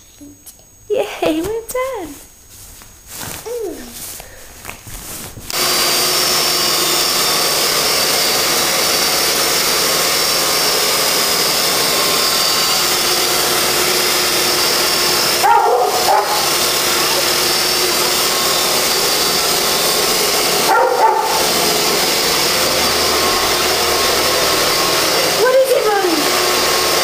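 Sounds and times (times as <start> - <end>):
food processor running: 5.5 - 27.0.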